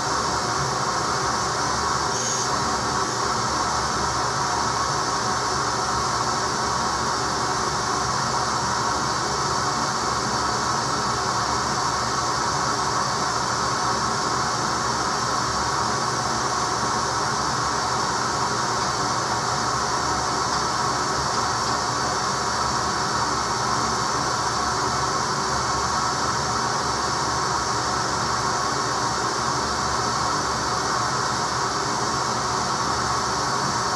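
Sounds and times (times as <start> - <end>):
vacuum cleaner running: 0.0 - 13.0.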